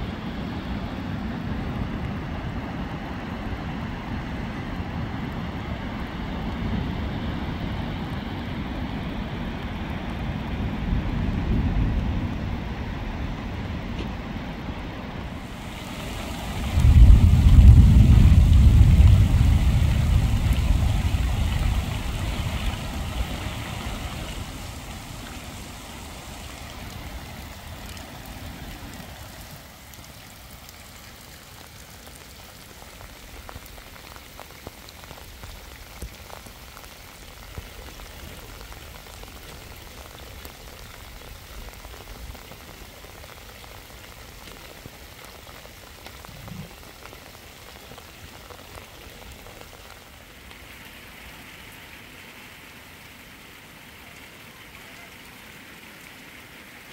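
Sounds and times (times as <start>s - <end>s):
rain falling: 0.0s - 56.9s
low rumble: 15.3s - 25.7s.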